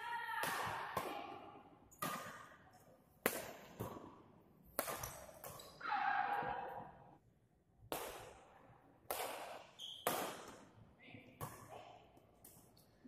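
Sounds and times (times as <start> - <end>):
racket hitting shuttlecock: 0.4 - 2.5, 3.2 - 6.5, 7.9 - 8.5, 9.1 - 10.7.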